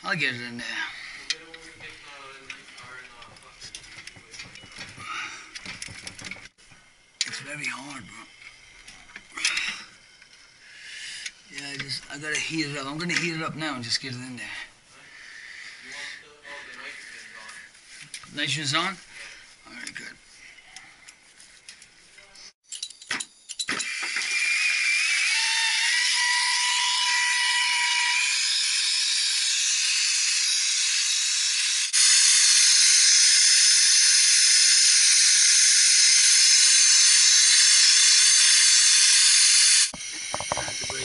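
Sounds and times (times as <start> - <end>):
brazing torch flame hissing: 31.9 - 41.0.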